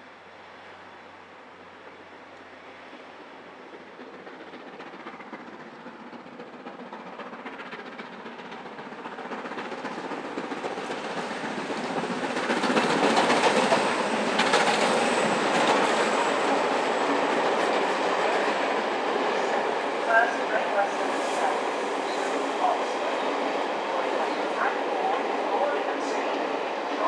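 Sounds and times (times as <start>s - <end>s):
steam locomotive passing: 0.0s - 27.0s.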